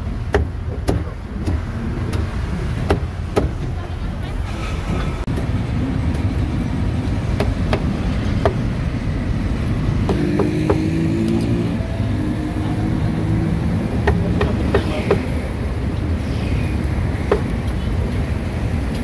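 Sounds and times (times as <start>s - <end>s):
street traffic rumble: 0.0s - 19.0s
sharp knocks: 0.3s - 3.7s, 10.0s - 11.0s, 17.3s - 17.5s.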